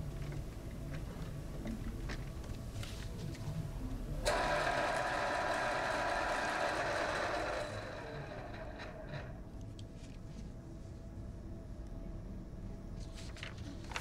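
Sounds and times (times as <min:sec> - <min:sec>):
electric pencil sharpener grinding: 0:04.3 - 0:09.4.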